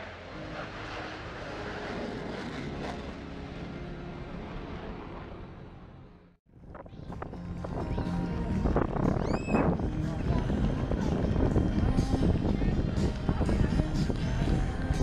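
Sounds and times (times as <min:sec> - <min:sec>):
airplane engine drone: 0:00.0 - 0:09.0.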